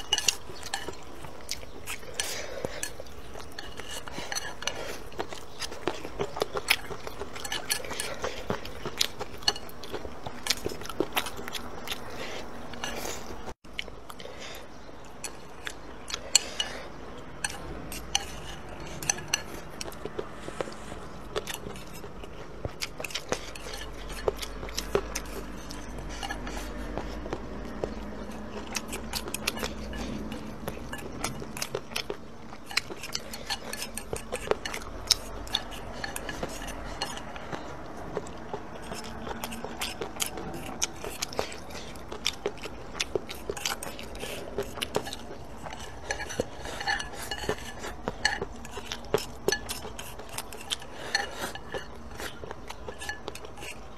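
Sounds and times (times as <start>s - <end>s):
utensils clicking against bowls: 0.0s - 11.4s, 22.8s - 53.9s
chewing and gnawing: 0.0s - 53.9s.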